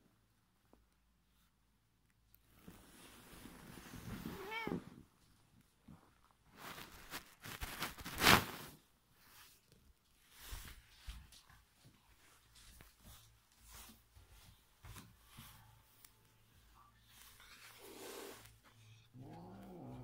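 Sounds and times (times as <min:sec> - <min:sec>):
soft bumps and rustles: 0:02.5 - 0:17.8
cat meowing: 0:04.3 - 0:05.0
scuffing noise: 0:10.3 - 0:17.5.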